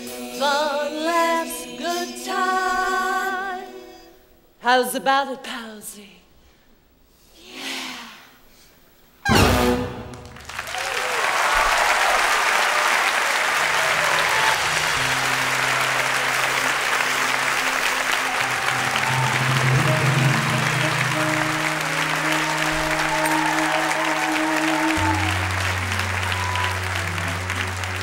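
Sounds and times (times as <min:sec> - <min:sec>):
audience applauding: 0:09.8 - 0:28.0
band playing held notes: 0:13.6 - 0:28.0.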